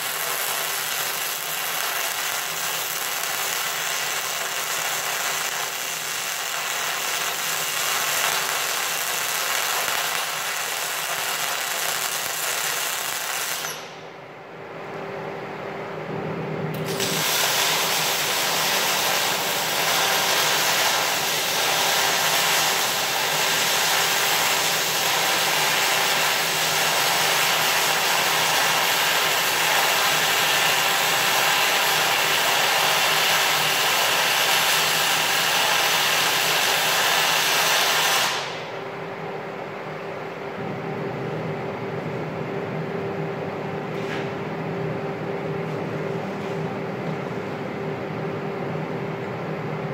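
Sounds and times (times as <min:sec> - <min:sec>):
welding arc hissing: 0:00.0 - 0:14.0, 0:16.8 - 0:38.7.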